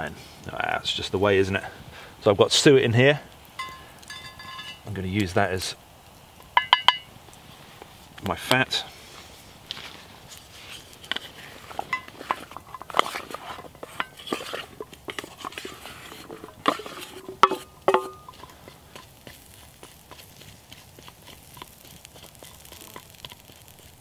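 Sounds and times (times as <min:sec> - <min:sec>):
fat crackling: 0:03.2 - 0:24.0
plate clanking on pan: 0:06.6 - 0:07.0, 0:16.1 - 0:18.4
spatula stirring in skillet: 0:09.0 - 0:24.0.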